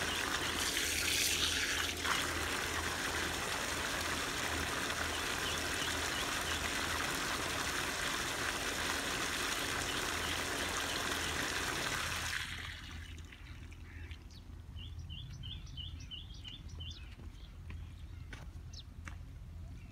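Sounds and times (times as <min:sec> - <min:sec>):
hose water spraying on metal coils: 0:00.0 - 0:11.5.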